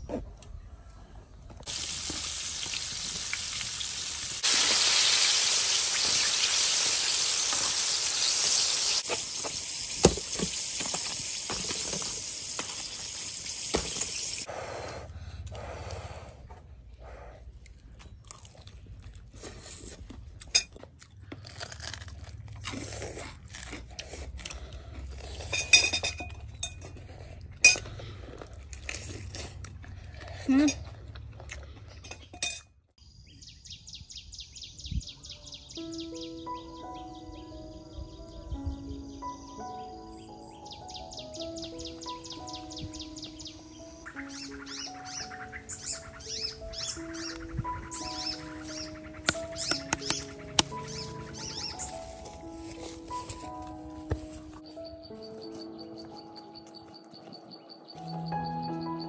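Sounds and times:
chicken deep-frying in oil: 1.7 - 14.5
crunching bites of fried chicken: 17.7 - 25.5, 27.8 - 31.9
dishes clinking: 25.5 - 27.0, 32.0 - 32.7.

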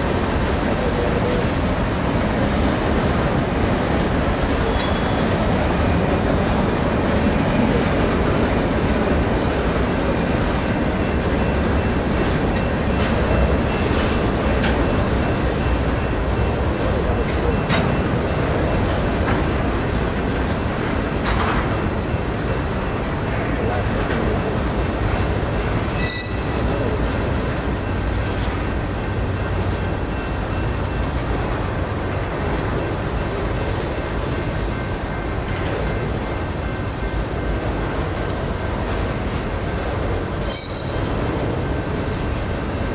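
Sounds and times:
freight train wheels on rails: 0.0 - 42.9
high-pitched wheel squeal: 26.0 - 27.0, 40.4 - 41.6.

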